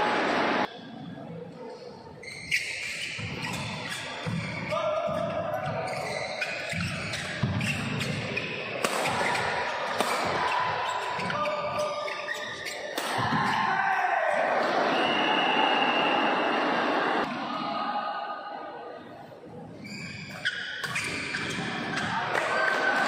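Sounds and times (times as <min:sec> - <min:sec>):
shoes squeaking on court: 0:02.2 - 0:13.0, 0:19.8 - 0:22.2
racket striking shuttlecock: 0:08.8 - 0:10.4.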